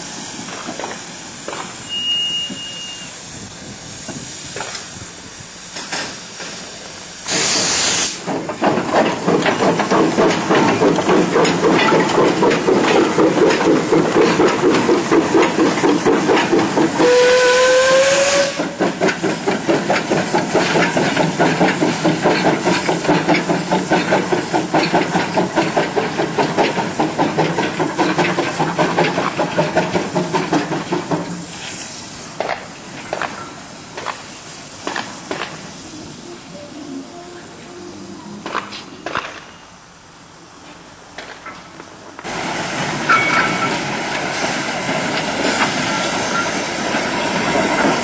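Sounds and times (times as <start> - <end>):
steam hissing: 0.0 - 48.0
steam locomotive exhaust beats: 0.0 - 48.0
steam whistle: 1.9 - 3.2, 17.0 - 18.8.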